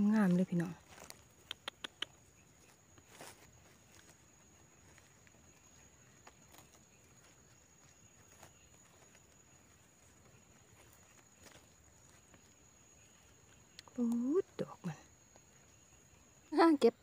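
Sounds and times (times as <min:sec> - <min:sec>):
small clicks of mushroom picking: 0:00.9 - 0:02.2, 0:13.5 - 0:14.3.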